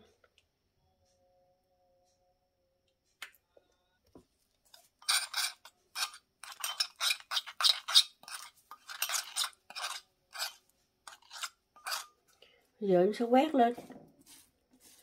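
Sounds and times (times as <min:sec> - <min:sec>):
spoon scraping glass bowl: 0:04.7 - 0:12.2.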